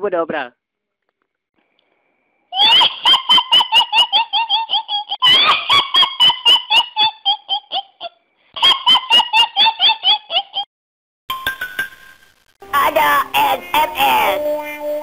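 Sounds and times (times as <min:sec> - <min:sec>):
shrill high-pitched cackle ringtone: 0:02.6 - 0:10.7.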